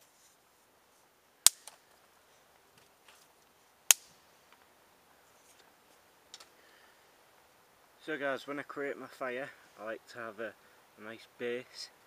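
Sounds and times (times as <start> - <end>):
dry sticks snapping: 1.4 - 1.8, 3.9 - 4.1.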